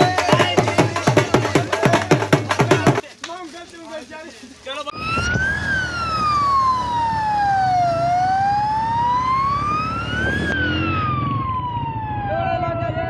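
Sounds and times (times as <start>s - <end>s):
siren wailing up and down: 4.9s - 13.0s.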